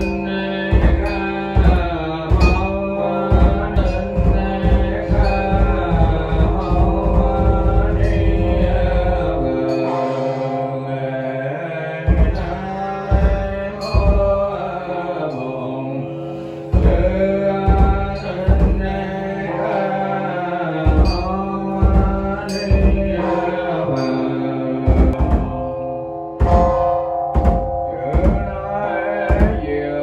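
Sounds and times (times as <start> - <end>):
deep drum beats: 0.0 - 9.9, 12.1 - 14.6, 16.7 - 19.2, 20.9 - 23.4, 24.9 - 25.8, 26.4 - 28.6, 29.3 - 29.7
chanting over held tones: 0.0 - 30.0.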